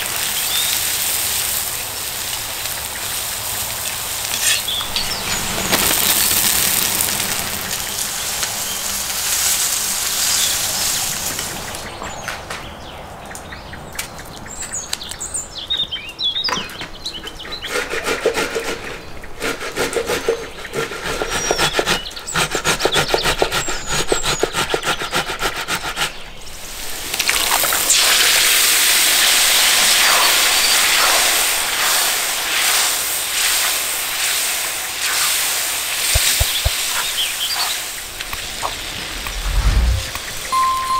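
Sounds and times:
tomato sizzling in pot: 0:00.0 - 0:11.9
birds chirping: 0:04.4 - 0:06.3.

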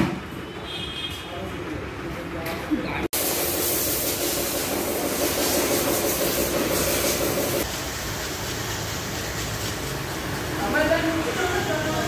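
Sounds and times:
hiss: 0:03.2 - 0:12.0.

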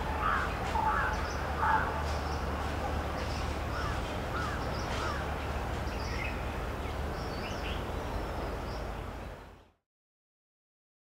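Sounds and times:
birds chirping: 0:00.0 - 0:09.8.

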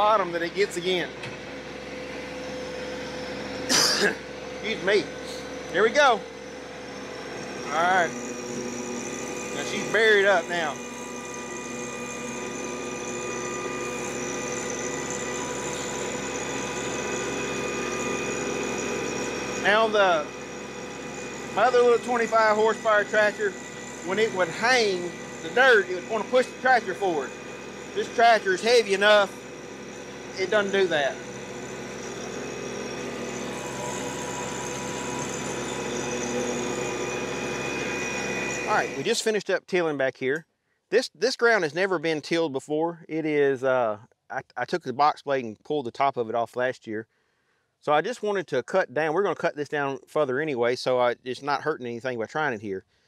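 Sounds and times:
rotary tiller: 0:00.8 - 0:39.2
tractor diesel engine under load: 0:04.5 - 0:39.0.

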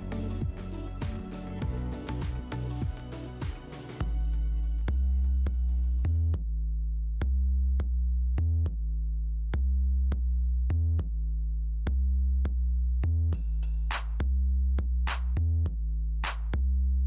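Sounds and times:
drum machine beat: 0:00.0 - 0:04.2, 0:13.4 - 0:16.6
deep synth bass line: 0:00.0 - 0:17.0.

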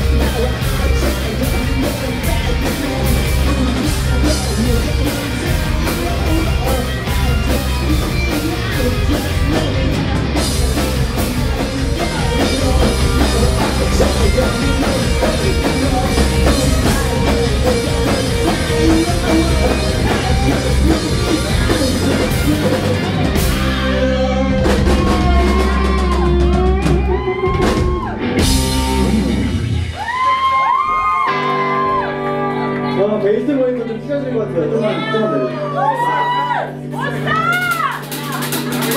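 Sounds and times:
person singing: 0:00.0 - 0:29.3
rock band playing: 0:00.0 - 0:38.9.

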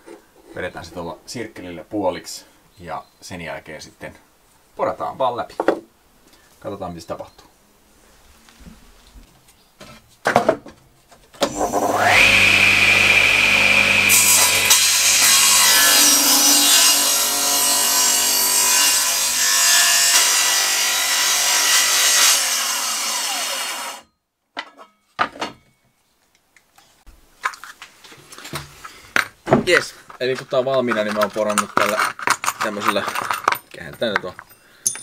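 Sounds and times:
table saw cutting wood: 0:11.4 - 0:24.0.

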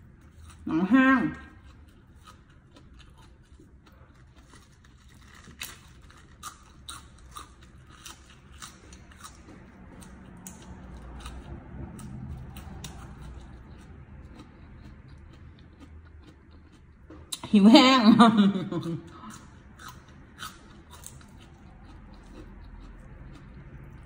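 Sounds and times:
crunching raw vegetables: 0:01.4 - 0:17.4
wet chewing: 0:01.5 - 0:17.4, 0:19.1 - 0:24.0.

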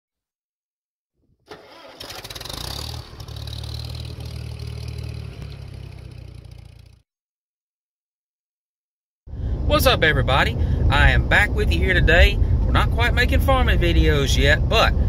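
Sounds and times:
engine starting and running: 0:01.5 - 0:07.0.

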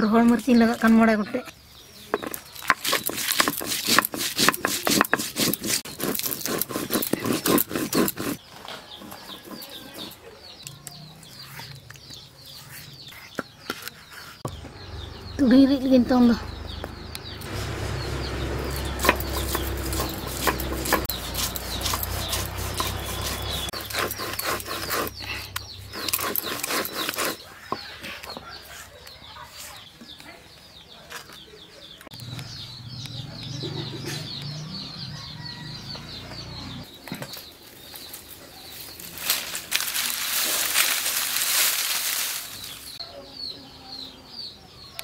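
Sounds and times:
birds chirping: 0:00.0 - 0:45.0
stone roller grinding on stone: 0:02.2 - 0:10.2, 0:18.5 - 0:25.2, 0:25.9 - 0:27.8
dry leaves and sticks rustling: 0:17.4 - 0:25.1, 0:37.0 - 0:43.0.

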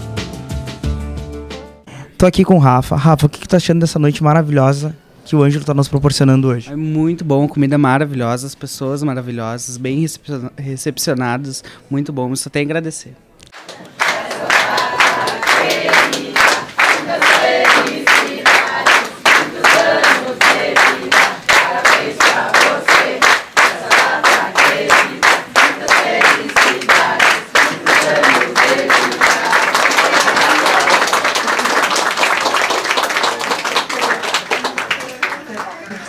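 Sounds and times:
rhythmic clapping: 0:13.5 - 0:36.0
applause: 0:13.6 - 0:36.0
crowd singing: 0:13.8 - 0:30.9.

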